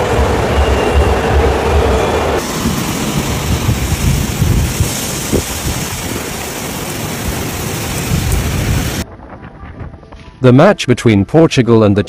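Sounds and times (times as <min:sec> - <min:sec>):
heavy rain falling: 0:00.0 - 0:09.0
wind buffeting microphone: 0:00.0 - 0:10.2.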